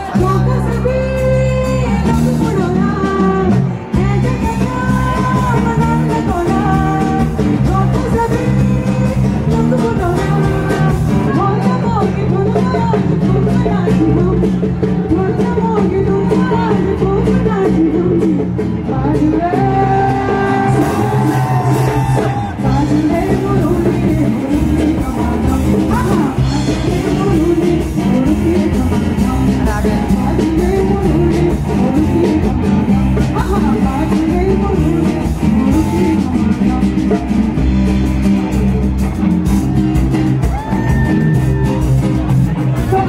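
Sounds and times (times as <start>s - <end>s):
woman singing into a microphone: 0.0s - 39.1s
live band playing: 0.0s - 43.0s.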